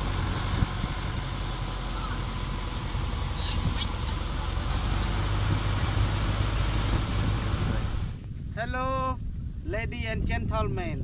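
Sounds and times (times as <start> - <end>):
motorboat engine running: 0.0 - 8.2.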